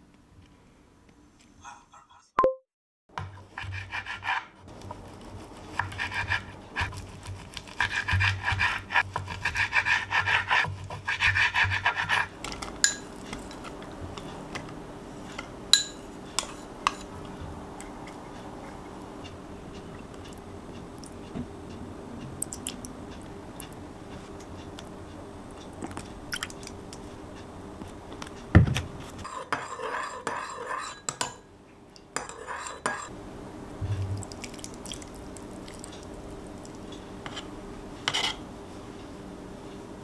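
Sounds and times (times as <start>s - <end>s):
metal spoon clinking on ceramic bowl: 12.8s - 13.1s, 15.8s - 16.0s.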